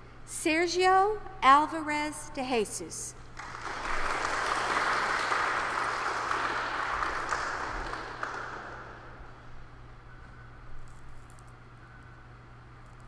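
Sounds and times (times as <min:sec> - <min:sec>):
audience applauding: 0:03.4 - 0:09.5.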